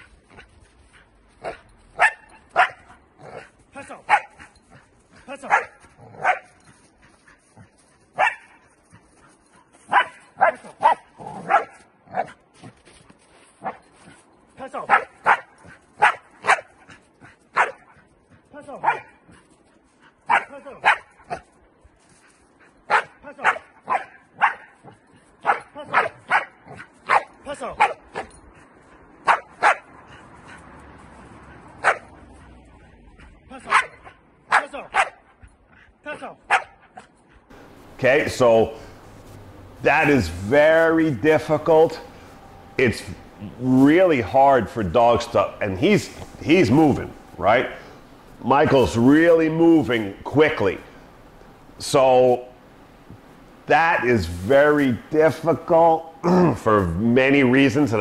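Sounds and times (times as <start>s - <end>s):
dog barking sharply: 1.4s - 2.9s, 4.1s - 4.4s, 5.5s - 6.5s, 8.2s - 8.6s, 9.9s - 12.3s, 14.9s - 16.7s, 17.6s - 17.9s, 18.8s - 19.2s, 20.3s - 21.4s, 22.9s - 24.8s, 25.4s - 28.3s, 29.2s - 29.9s, 31.8s - 32.1s, 33.6s - 35.3s, 36.5s - 37.1s.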